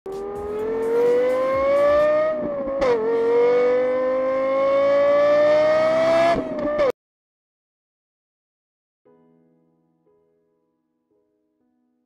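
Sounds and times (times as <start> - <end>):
car engine accelerating: 0.1 - 6.9.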